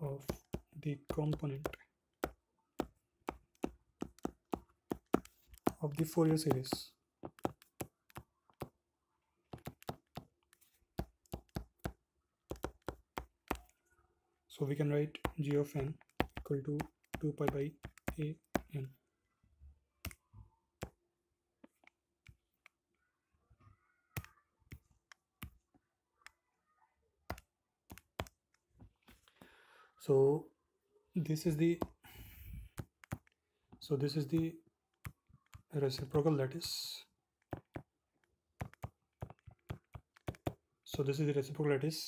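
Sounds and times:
stylus tapping on glass screen: 0:00.3 - 0:08.7, 0:11.0 - 0:13.6, 0:15.2 - 0:18.7.

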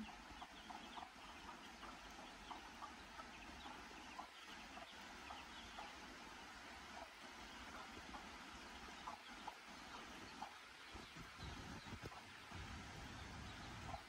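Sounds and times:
baby chicks peeping: 0:00.0 - 0:14.0.

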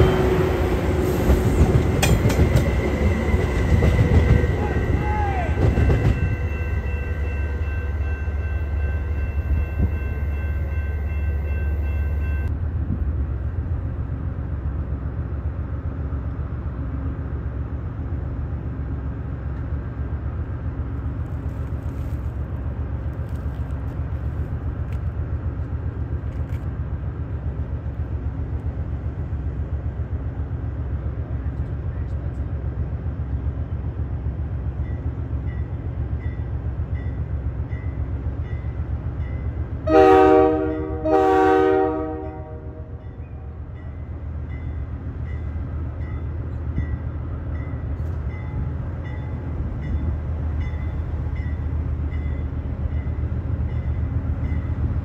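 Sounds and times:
train whining tones: 0:00.0 - 0:12.6, 0:34.8 - 0:55.0
train rolling past: 0:00.0 - 0:55.0.

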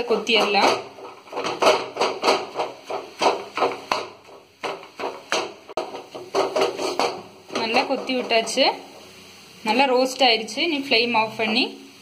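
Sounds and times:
metal spatula clanking on pan: 0:00.0 - 0:09.1.

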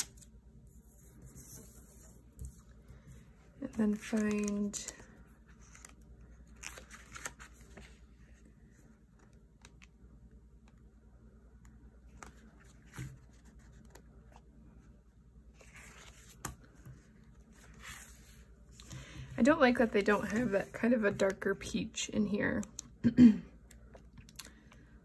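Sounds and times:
paper rustling: 0:00.0 - 0:04.8, 0:05.5 - 0:08.0.

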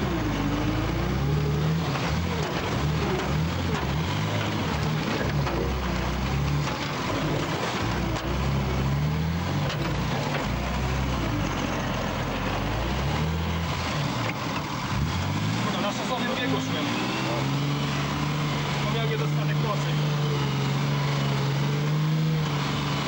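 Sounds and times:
constant rushing noise: 0:00.0 - 0:20.6
diesel engine revving: 0:00.0 - 0:23.0.

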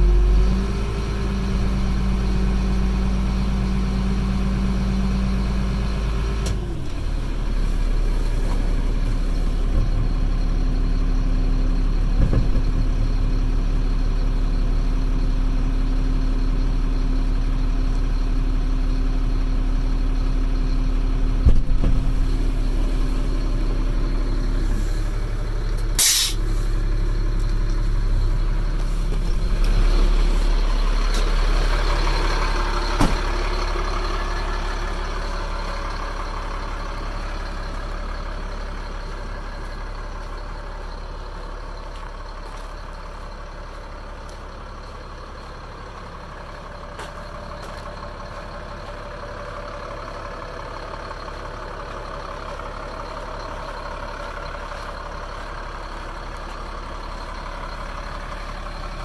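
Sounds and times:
diesel truck engine running: 0:00.0 - 0:59.0
short sharp hiss: 0:26.0 - 0:26.7.

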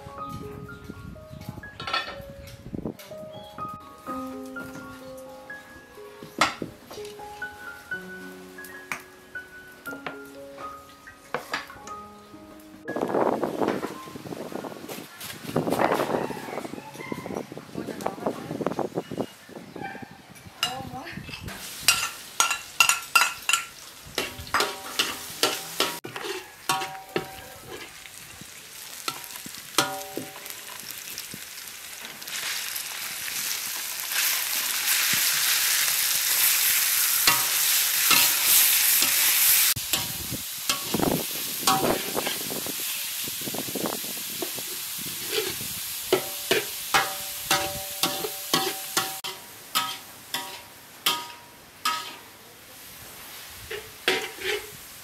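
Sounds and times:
metal spoon clanking against wok: 0:20.6 - 0:27.9, 0:29.1 - 0:30.8, 0:37.2 - 0:41.0, 0:41.6 - 0:42.4, 0:46.1 - 0:52.3, 0:53.7 - 0:54.7
food sizzling in hot oil: 0:21.4 - 0:55.0.

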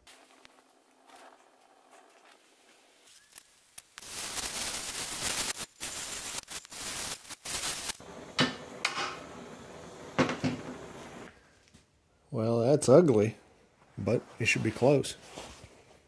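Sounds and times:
cutting torch hissing: 0:01.0 - 0:11.3.

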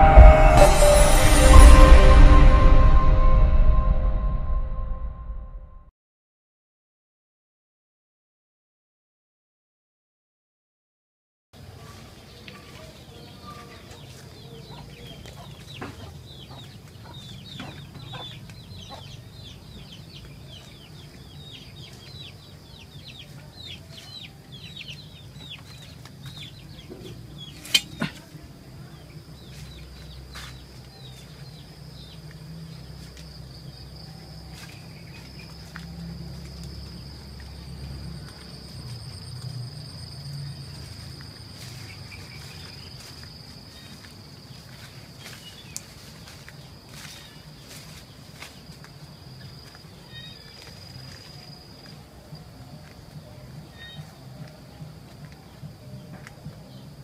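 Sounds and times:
chickens peeping: 0:12.5 - 0:28.0
high insect whine: 0:31.8 - 0:45.4.

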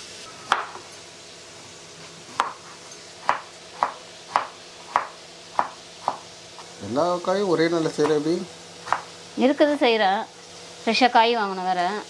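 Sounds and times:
knife knocking on chopping board: 0:02.4 - 0:02.6, 0:03.2 - 0:06.2, 0:08.8 - 0:09.1.

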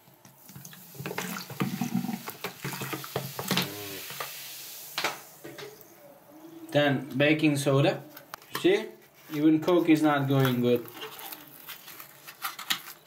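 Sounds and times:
soda pouring into a sink: 0:00.4 - 0:05.4
soda fizzing: 0:00.4 - 0:05.8.

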